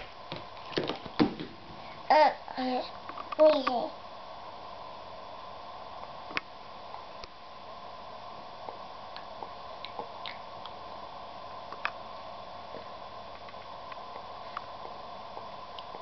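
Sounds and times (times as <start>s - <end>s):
steady background hum: 0.0s - 16.0s
baby chewing and sucking fingers: 8.6s - 10.8s.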